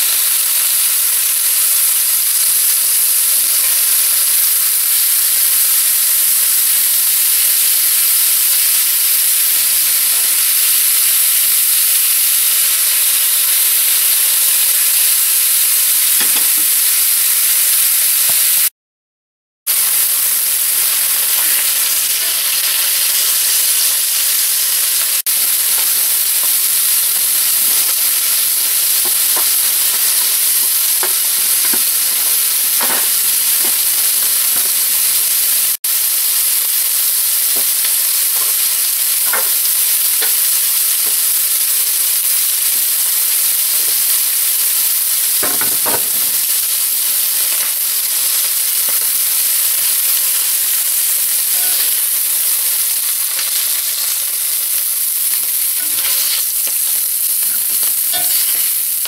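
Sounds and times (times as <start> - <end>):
meat sizzling in hot oil: 0.0 - 18.7, 19.7 - 59.0
metal tongs clinking on pan: 39.3 - 39.6, 55.8 - 58.8.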